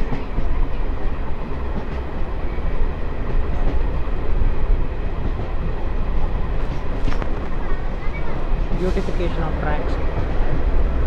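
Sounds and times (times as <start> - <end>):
train wheels rumbling on rails: 0.0 - 11.0.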